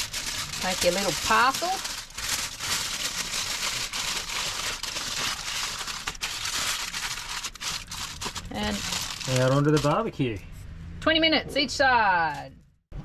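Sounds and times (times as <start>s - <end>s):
aluminium foil crinkling: 0.0s - 10.0s.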